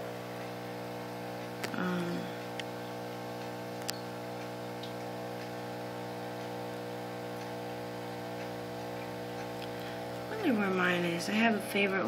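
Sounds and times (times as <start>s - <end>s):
aquarium air pump humming: 0.0s - 12.0s
faint ticks: 6.4s - 10.3s.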